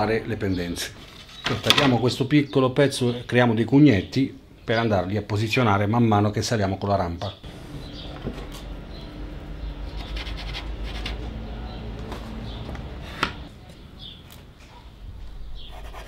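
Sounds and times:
steady low hum: 7.4 - 16.0
board scratching and rubbing: 9.9 - 11.4, 15.6 - 16.0.

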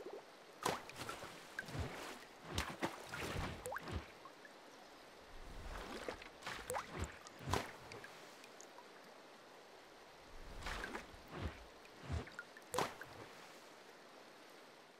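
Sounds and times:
water drips and plops: 0.0 - 4.6, 5.4 - 8.9, 10.4 - 13.3
water bubbling: 0.9 - 4.2, 5.3 - 8.7, 10.4 - 13.3.

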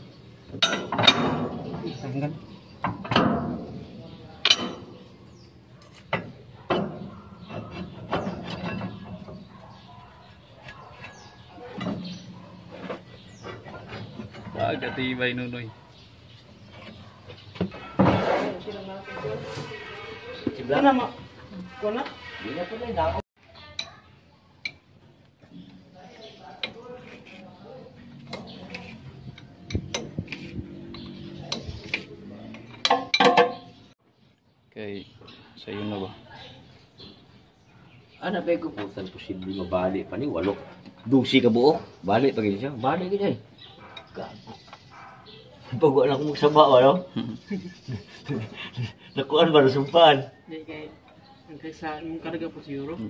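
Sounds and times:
metal leaf springs knocking: 0.5 - 2.0, 2.8 - 3.8, 4.4 - 5.1.

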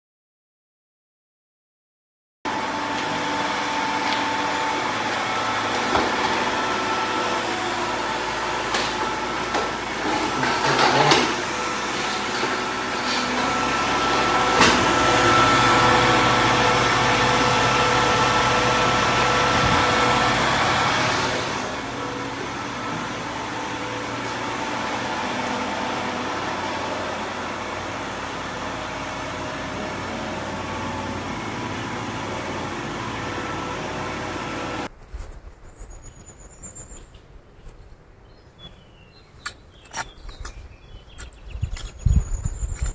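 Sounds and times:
hydraulic crane whine: 2.5 - 34.9
truck engine running: 2.5 - 34.9.

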